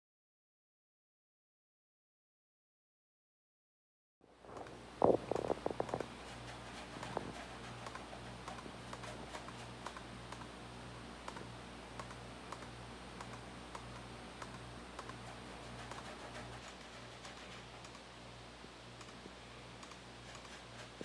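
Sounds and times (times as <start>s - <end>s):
low pulsing hum: 4.3s - 21.0s
laptop keyboard clicking: 11.3s - 15.2s, 19.8s - 20.6s.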